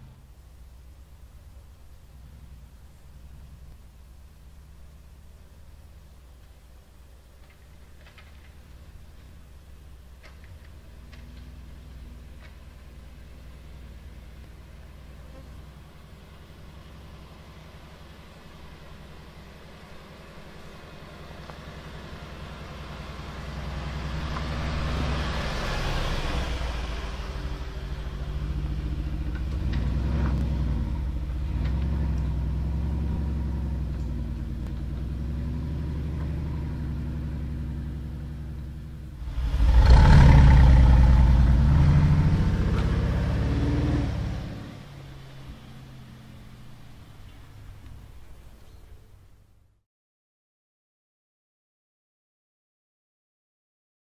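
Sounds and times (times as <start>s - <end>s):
truck engine under load: 20.2s - 48.4s.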